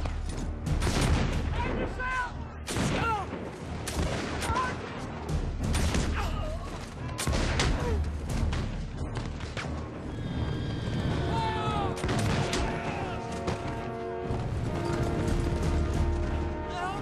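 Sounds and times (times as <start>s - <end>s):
orchestral film music: 0.0s - 17.0s
musket shots: 2.6s - 9.0s, 12.0s - 13.8s.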